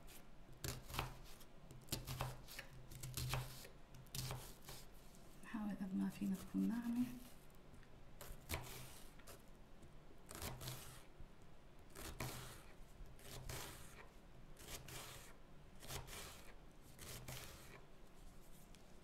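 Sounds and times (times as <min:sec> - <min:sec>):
knife slicing onion on board: 0:00.6 - 0:04.9, 0:08.2 - 0:09.4, 0:10.3 - 0:11.1, 0:11.9 - 0:17.8.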